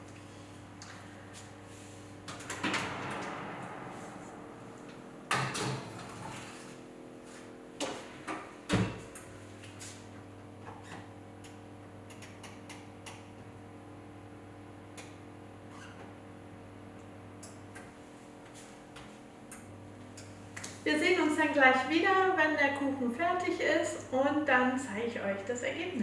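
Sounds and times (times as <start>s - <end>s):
steady low hum: 0.0s - 15.2s
oven door opening: 2.2s - 6.8s
oven door thumping shut: 2.5s - 6.3s.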